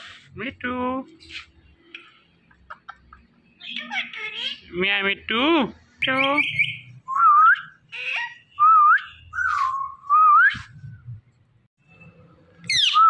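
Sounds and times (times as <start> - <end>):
parakeet whistling: 6.2 - 10.8, 12.7 - 13.0.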